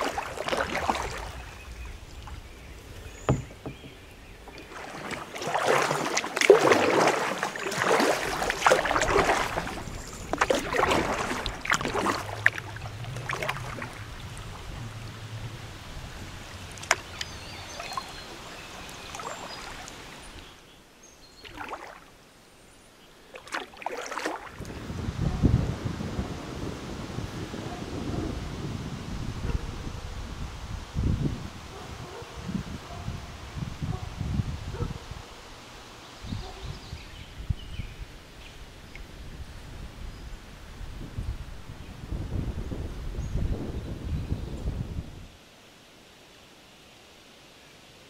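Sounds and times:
paddle splashing in water: 0:00.0 - 0:20.6, 0:21.3 - 0:22.3, 0:23.2 - 0:25.4.

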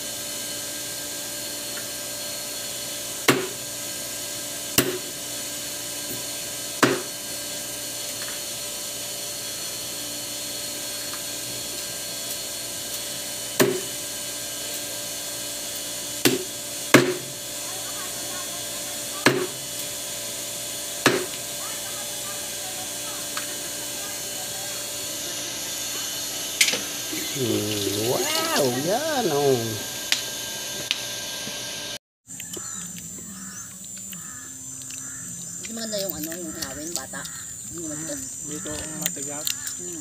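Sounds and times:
machete chopping on wooden block: 0:03.3 - 0:03.6, 0:04.8 - 0:05.1, 0:06.8 - 0:07.1, 0:13.6 - 0:13.9, 0:16.2 - 0:17.3, 0:19.2 - 0:19.6, 0:21.0 - 0:21.4.

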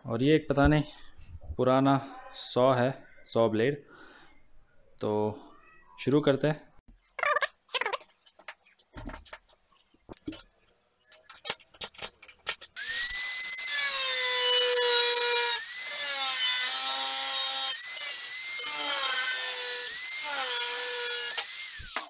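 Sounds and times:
angle grinder cutting steel: 0:12.5 - 0:22.0.

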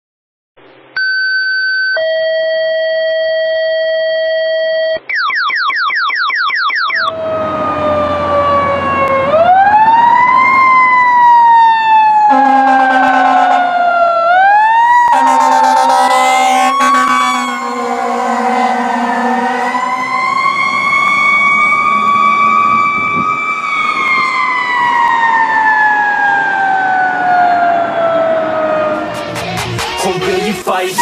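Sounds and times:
siren steady tone and yelp: 0:05.0 - 0:29.3
fire engine wailing siren: 0:06.9 - 0:30.3
air horn blasts: 0:12.3 - 0:13.7, 0:15.1 - 0:20.9.

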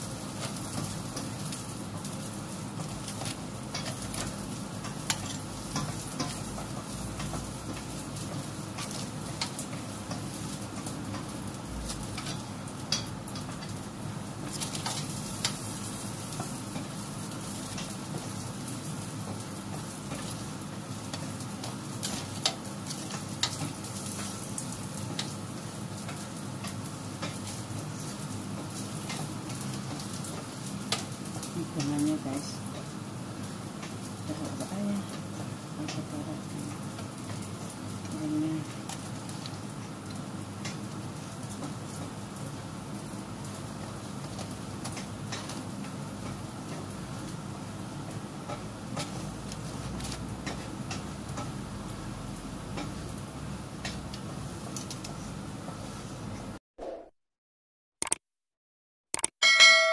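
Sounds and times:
food sizzling: 0:00.0 - 0:56.6
sharp clicks: 0:59.1 - 0:59.4.

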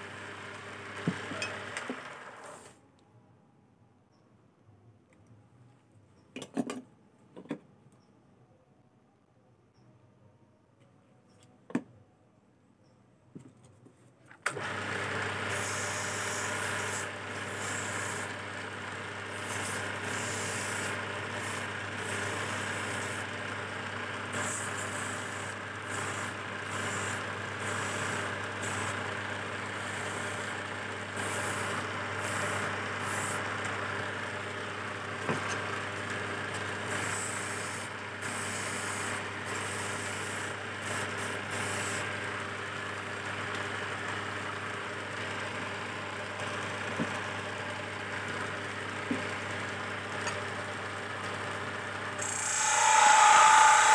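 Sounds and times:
wood lathe humming: 0:14.5 - 0:18.4, 0:19.1 - 0:35.2, 0:52.2 - 0:53.9
chisel scraping spinning wood: 0:52.2 - 0:53.9.

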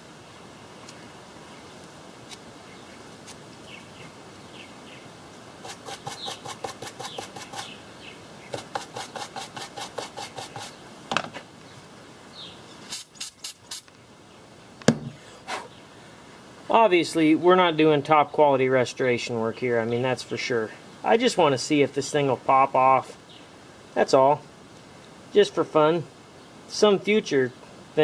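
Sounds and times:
rag rubbing on wire: 0:05.6 - 0:07.8, 0:08.5 - 0:10.8
clicks and knocks on bench: 0:14.8 - 0:15.2.

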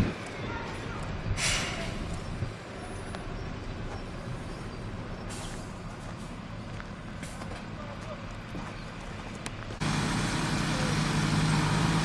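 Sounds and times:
diesel truck engines running: 0:00.0 - 0:12.0
air hiss bursts: 0:01.4 - 0:01.9.

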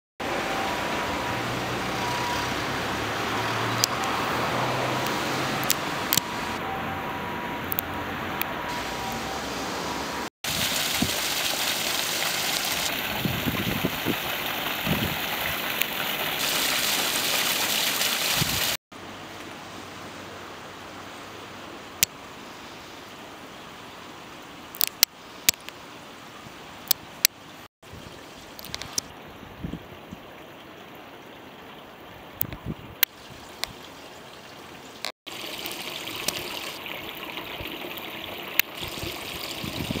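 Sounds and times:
gentle stream flow: 0:00.2 - 0:40.0
water splashing over rocks: 0:10.4 - 0:18.8, 0:26.8 - 0:29.2, 0:30.0 - 0:40.0.

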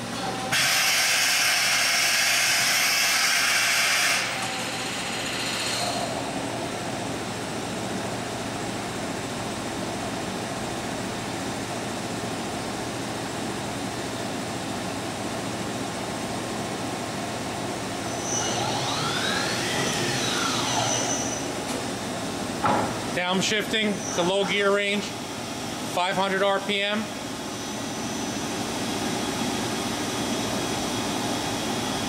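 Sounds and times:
machine humming: 0:17.8 - 0:32.0
motor whine rising and falling: 0:18.1 - 0:21.6.

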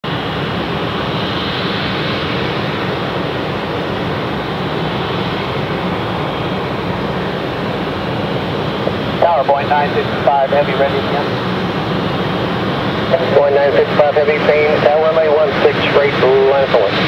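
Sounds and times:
jet engines idling: 0:00.1 - 0:17.0
faint high whine: 0:08.7 - 0:17.0.

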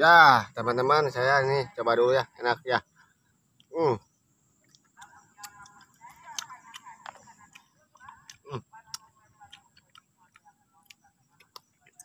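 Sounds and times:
wet chewing and mouth clicks: 0:04.6 - 0:12.0.

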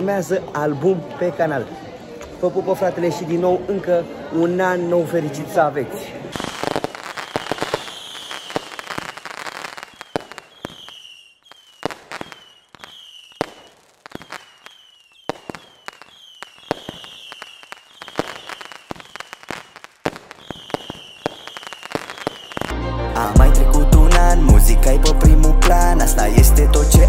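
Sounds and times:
falling firework whistles: 0:06.3 - 0:22.7
firework bangs and crackles: 0:06.3 - 0:22.8.

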